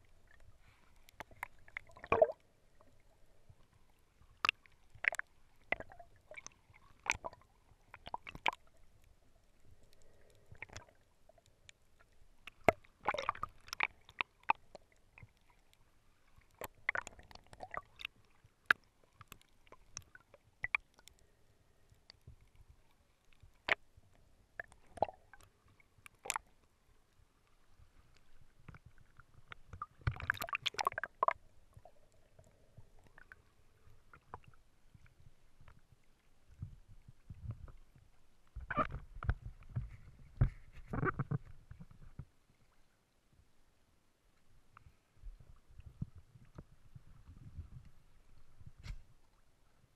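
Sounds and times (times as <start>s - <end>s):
muffled water sloshing: 0.0s - 20.8s
underwater clicks and knocks: 1.1s - 2.4s, 8.0s - 8.7s, 12.4s - 14.8s, 28.6s - 31.9s, 36.5s - 37.9s, 38.5s - 42.3s.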